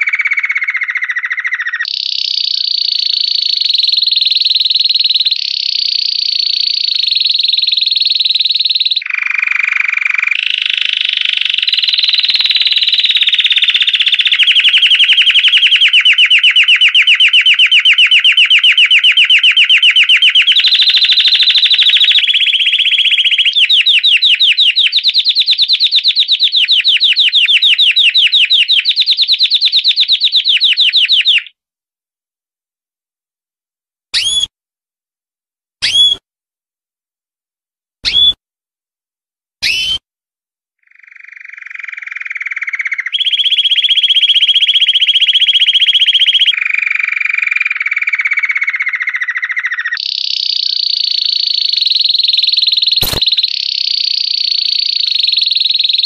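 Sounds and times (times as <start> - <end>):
canary singing trills: 0.0 - 31.6, 34.2 - 34.5, 35.8 - 36.2, 38.0 - 38.4, 39.6 - 40.0, 40.8 - 56.0.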